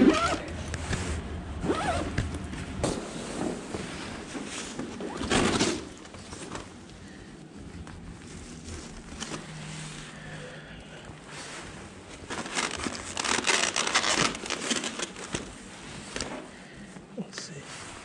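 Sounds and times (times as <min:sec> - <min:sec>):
food bag crinkling and rustling: 0:12.1 - 0:16.4.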